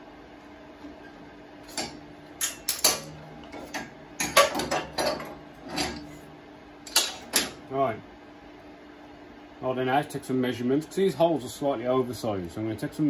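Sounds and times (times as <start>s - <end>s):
metal tools clanking on steel: 1.7s - 6.2s, 6.9s - 7.6s.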